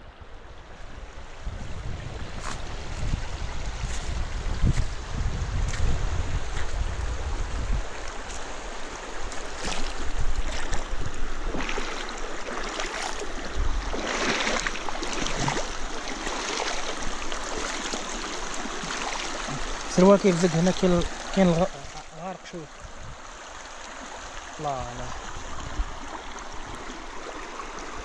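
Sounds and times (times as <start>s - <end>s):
wind buffeting microphone: 0.2s - 17.5s, 24.8s - 26.8s
river rushing over stones: 2.1s - 28.0s.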